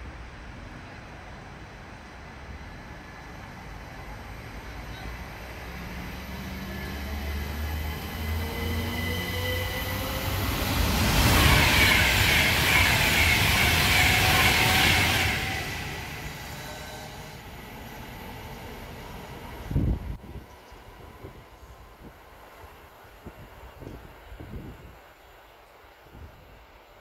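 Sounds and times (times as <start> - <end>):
train wheels on rails: 3.6 - 20.6.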